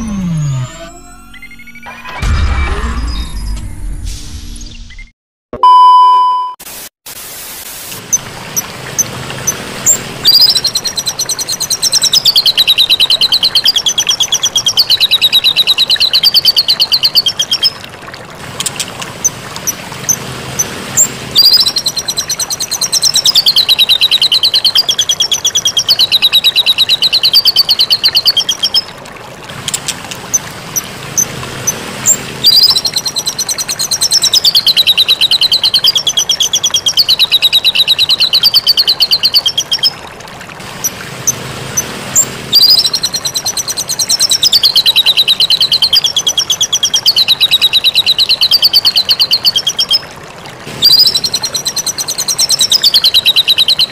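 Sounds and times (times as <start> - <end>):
steady beep: 0.0 - 3.5, 5.6 - 6.6
static glitch effect: 0.0 - 4.8.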